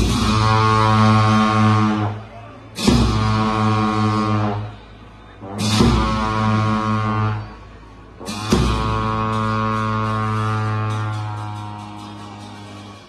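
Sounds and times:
long horns droning: 0.0s - 13.0s
cymbal crash: 8.3s - 13.0s.

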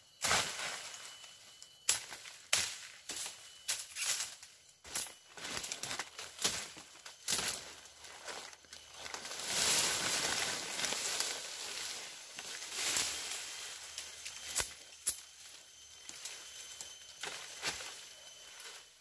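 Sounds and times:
dry leaves crackling and rustling: 3.5s - 14.8s.

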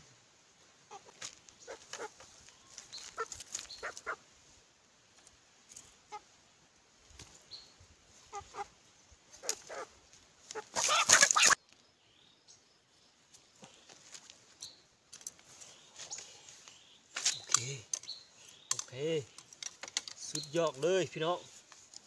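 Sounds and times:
animal cries: 3.1s - 4.2s, 8.2s - 8.7s, 9.4s - 9.9s, 10.5s - 11.6s
animal hissing scuffle: 10.5s - 11.6s.

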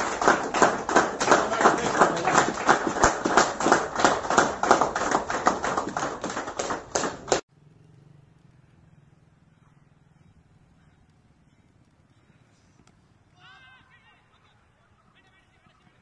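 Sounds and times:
people clapping: 0.0s - 7.4s.

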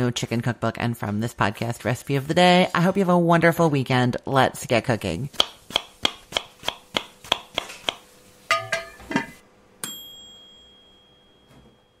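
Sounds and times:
bright bell ding: 9.8s - 12.0s.

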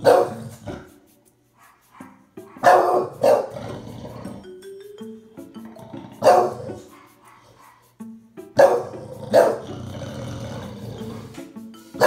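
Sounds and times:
dog barking: 0.0s - 0.9s, 1.6s - 3.6s, 6.2s - 8.0s, 8.6s - 9.8s
background music: 0.0s - 12.0s.

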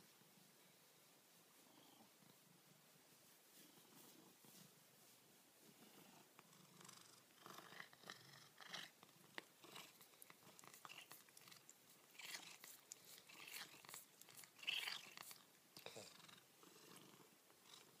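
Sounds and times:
cat purring softly: 5.6s - 18.0s.

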